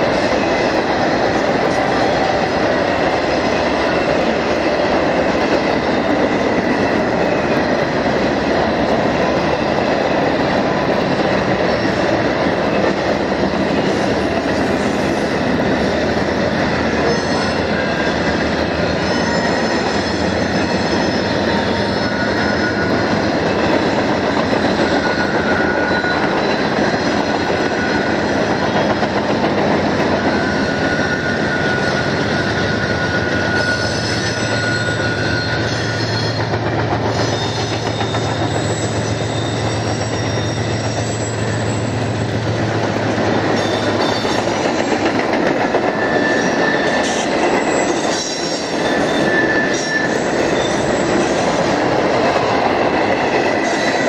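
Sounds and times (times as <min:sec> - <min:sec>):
freight train rumbling past: 0:00.0 - 0:54.0
train wheels squealing: 0:00.0 - 0:54.0.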